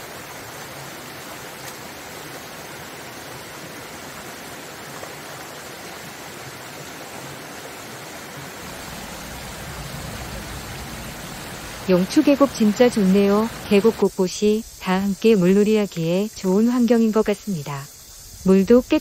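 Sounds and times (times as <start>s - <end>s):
stream rushing over rocks: 0.0s - 14.2s.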